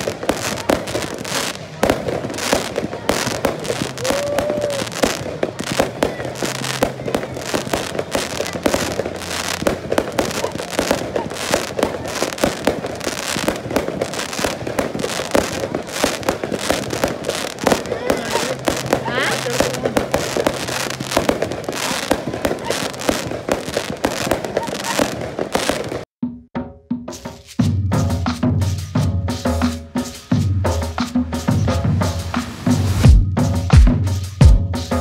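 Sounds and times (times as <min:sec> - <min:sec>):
fireworks bangs and crackles: 0:00.0 - 0:26.1.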